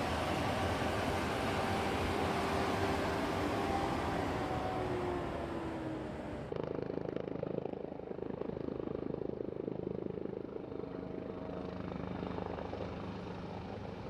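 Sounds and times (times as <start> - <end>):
helicopter rotor chopping: 0.0 - 8.4.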